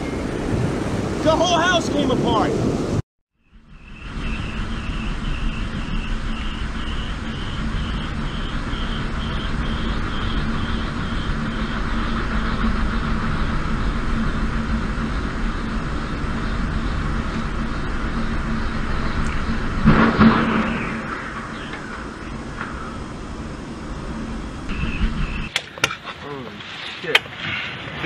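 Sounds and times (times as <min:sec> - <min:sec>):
wind turbine roar: 0:00.0 - 0:25.9
low hum: 0:03.4 - 0:25.6
pulsing high whine: 0:03.4 - 0:25.6.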